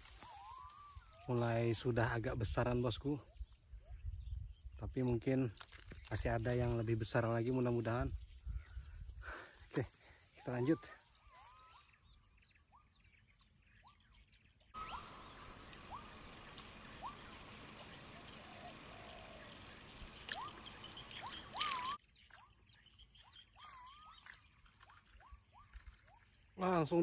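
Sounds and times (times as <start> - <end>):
high insect trill: 0.0 - 1.2, 14.8 - 22.0
falling bird whistles: 20.2 - 22.0.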